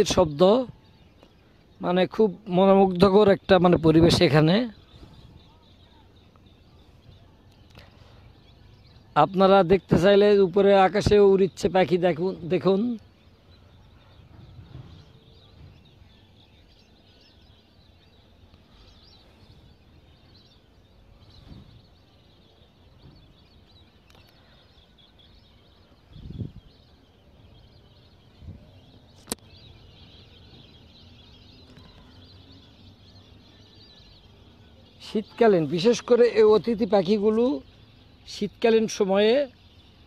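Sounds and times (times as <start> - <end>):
faint chirping of birds: 0.0 - 40.0.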